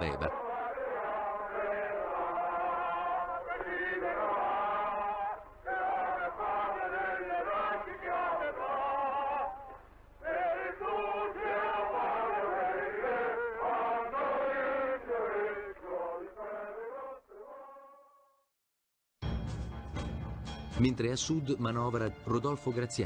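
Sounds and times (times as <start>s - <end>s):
male chorus singing: 0.0s - 17.8s.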